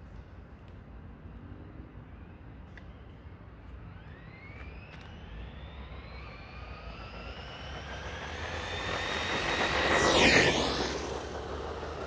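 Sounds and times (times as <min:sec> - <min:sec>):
electric motor whining: 0:03.9 - 0:12.0.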